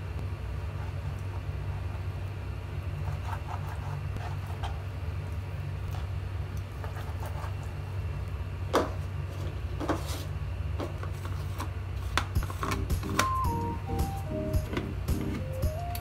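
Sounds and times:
steady low hum: 0.0s - 16.0s
light music: 12.4s - 16.0s.

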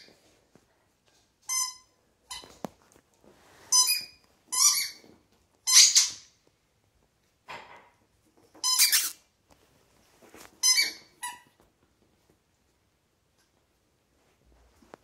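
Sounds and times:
rubber squeaky ball squeaks: 3.7s - 5.0s, 8.6s - 9.2s, 10.6s - 11.6s.

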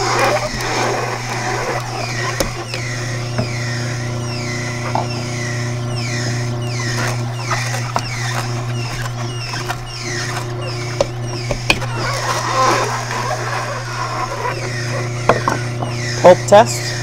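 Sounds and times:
sharp crunching clicks: 0.0s - 3.0s, 6.0s - 16.0s
juicer motor humming: 0.0s - 17.0s
squeaky creaks: 0.0s - 17.0s.

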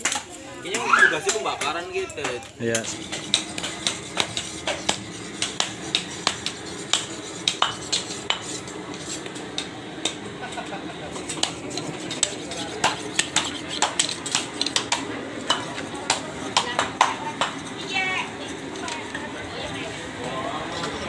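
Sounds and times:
cleavers chopping meat and bone: 0.0s - 10.2s, 11.0s - 17.7s.

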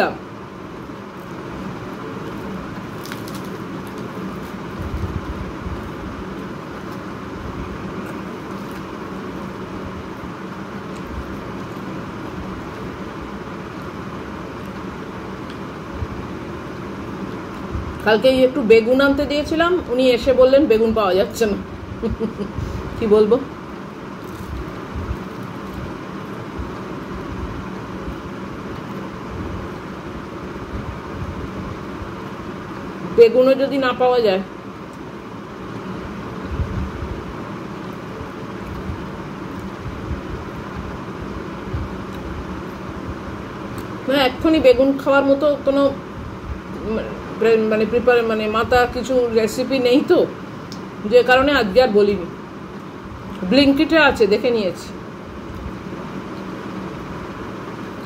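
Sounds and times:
faint low hum: 0.0s - 58.0s
hands tearing fried bread: 1.3s - 5.3s, 7.9s - 9.5s.

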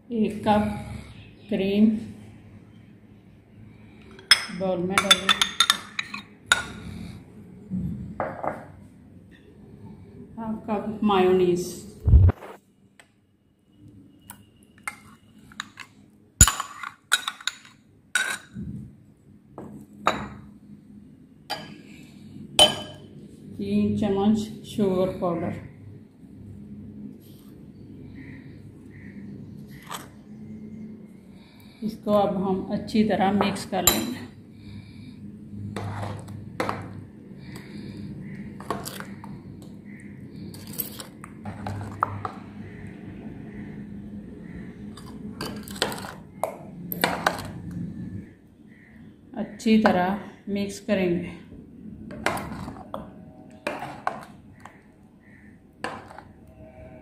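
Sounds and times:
spoon clinking on glass: 4.2s - 6.8s, 16.4s - 18.5s, 22.6s - 23.1s
spoon scraping glass bowl: 35.8s - 36.4s, 38.6s - 39.3s, 52.1s - 53.0s, 55.8s - 57.0s.

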